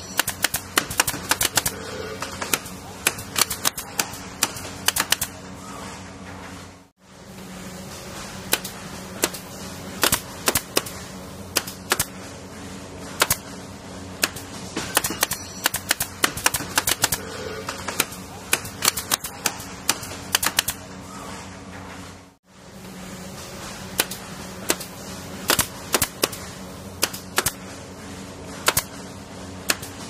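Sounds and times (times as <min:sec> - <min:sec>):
steady low hum: 0:00.0 - 0:30.0
nail gun firing: 0:00.2 - 0:01.8, 0:02.4 - 0:05.3, 0:08.5 - 0:09.4, 0:10.0 - 0:12.1, 0:13.2 - 0:13.4, 0:14.2 - 0:17.2, 0:17.9 - 0:20.8, 0:24.0 - 0:24.9, 0:25.5 - 0:26.4, 0:27.0 - 0:27.6, 0:28.6 - 0:28.9, 0:29.7 - 0:30.0.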